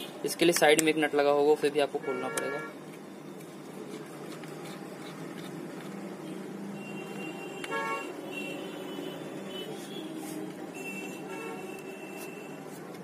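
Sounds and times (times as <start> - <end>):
road traffic: 0.0 - 13.0
vehicle horn toots: 6.8 - 12.6.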